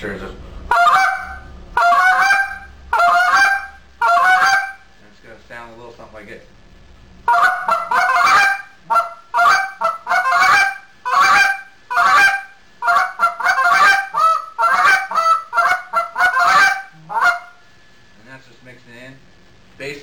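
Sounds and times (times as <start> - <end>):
goose call clucks: 0.7 - 4.9, 7.3 - 17.6.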